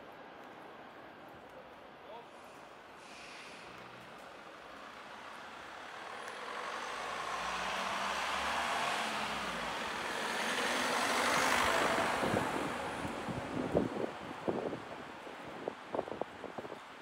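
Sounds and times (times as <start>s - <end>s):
large vehicle passing: 3.3s - 14.0s.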